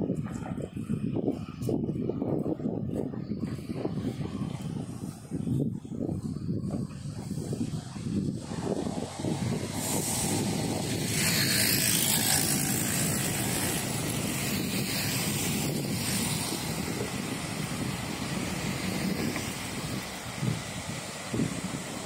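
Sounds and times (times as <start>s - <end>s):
city street traffic: 0.0s - 22.0s
vehicle passing: 7.3s - 22.0s.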